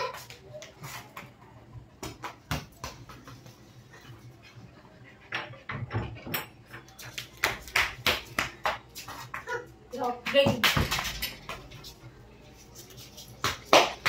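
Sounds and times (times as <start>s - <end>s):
ball bouncing on concrete: 2.0s - 3.6s, 5.7s - 11.8s, 13.3s - 14.0s.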